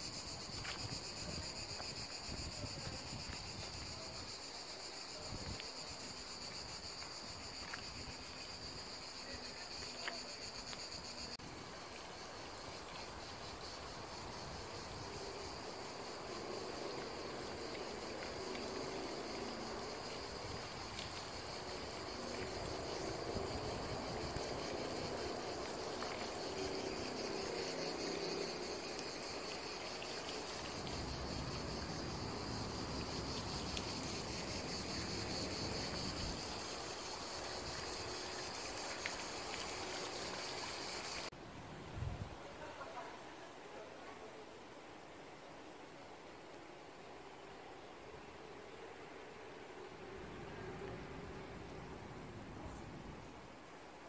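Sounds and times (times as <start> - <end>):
fountain water splashing: 15.6 - 41.3.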